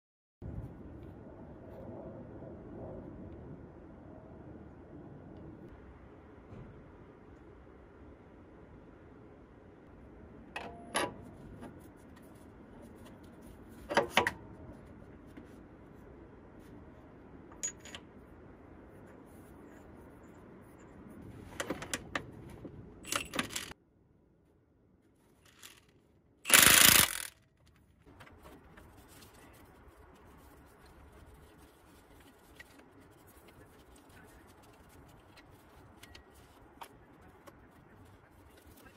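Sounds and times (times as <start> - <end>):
metal clinks and knocks: 17.5 - 18.2.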